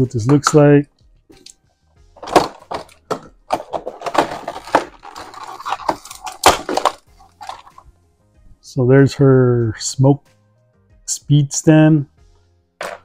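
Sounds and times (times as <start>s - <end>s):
sharp plastic crack: 2.2s - 7.8s
plastic packaging crinkling: 3.9s - 7.8s.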